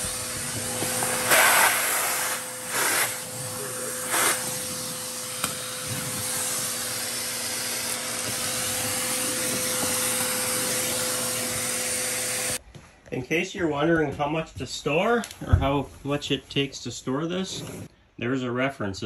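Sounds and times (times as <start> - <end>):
vacuum cleaner running: 0.0 - 12.6.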